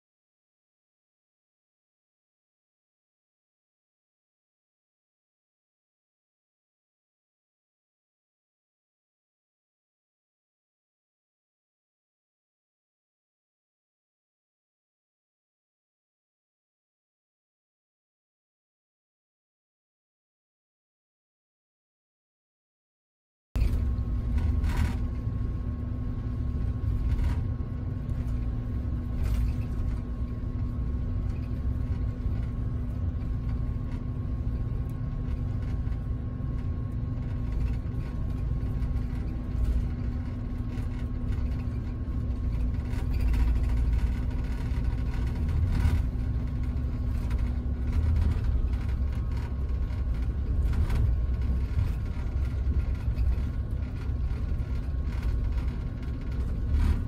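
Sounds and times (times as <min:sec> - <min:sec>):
engine and tyre rumble: 0:23.6 - 0:57.0.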